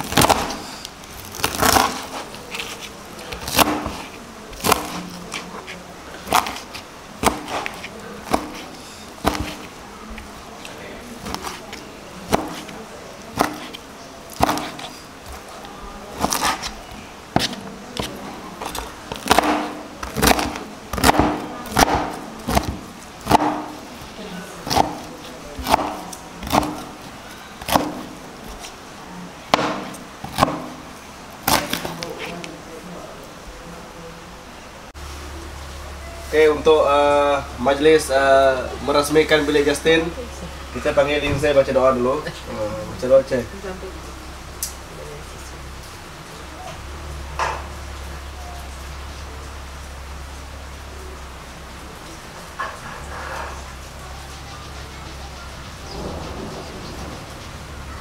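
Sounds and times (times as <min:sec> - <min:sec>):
knife crunching through crackling: 0:00.0 - 0:28.8, 0:31.4 - 0:32.5.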